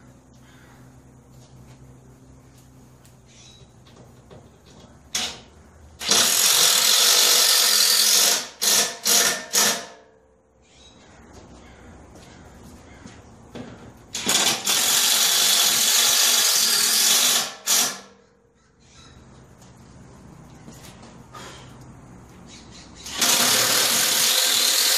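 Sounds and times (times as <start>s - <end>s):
cordless drill running under load: 6.0s - 9.7s, 14.2s - 18.0s, 23.1s - 24.9s.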